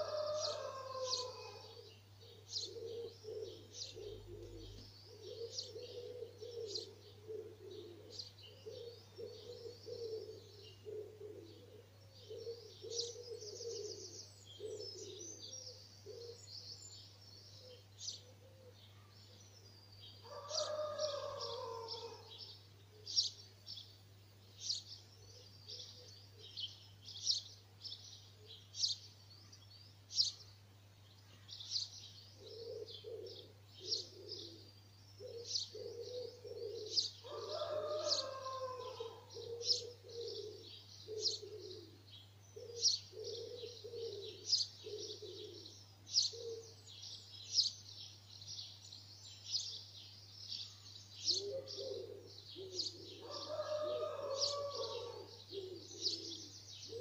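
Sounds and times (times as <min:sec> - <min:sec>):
pigeon cooing: 0:00.0 - 0:16.5, 0:20.3 - 0:22.3, 0:32.4 - 0:42.0, 0:42.6 - 0:46.8, 0:51.3 - 0:57.0
songbirds singing and chirping: 0:00.0 - 0:57.0.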